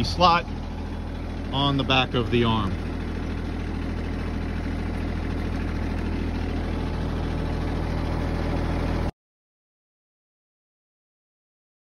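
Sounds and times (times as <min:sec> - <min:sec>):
tractor diesel engine idling: 0:00.0 - 0:09.1.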